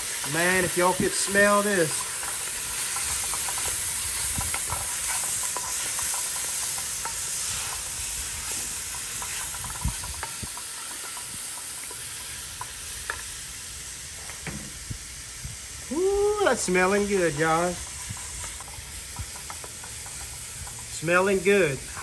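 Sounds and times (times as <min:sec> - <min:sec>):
vegetables sizzling in a pot: 0:00.0 - 0:22.0
wooden spoon tapping and scraping pot: 0:17.3 - 0:21.0.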